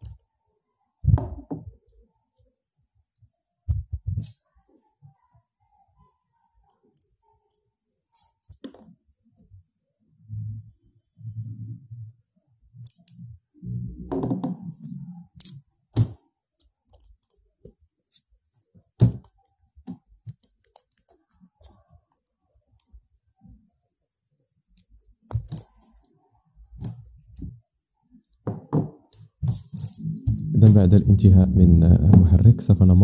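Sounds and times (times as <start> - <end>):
small metal parts clicking: 6.7 - 8.7, 12.8 - 13.2, 14.9 - 15.6, 16.6 - 19.4, 20.3 - 26.9.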